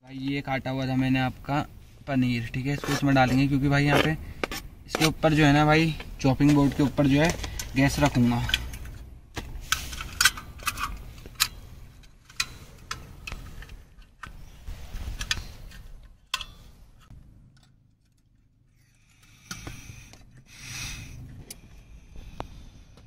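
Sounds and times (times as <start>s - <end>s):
camping stove fittings clicking: 7.2s - 9.1s, 9.7s - 14.6s, 15.2s - 18.2s.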